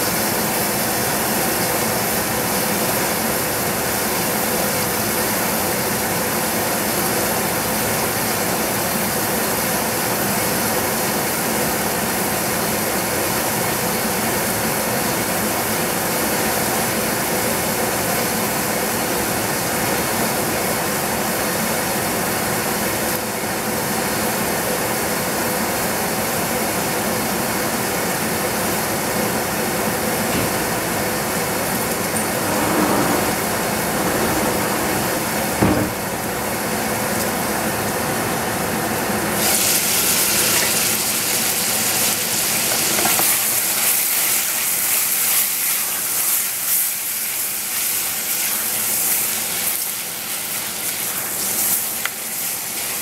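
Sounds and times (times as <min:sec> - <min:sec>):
gas stove rushing: 0:28.9 - 0:37.5.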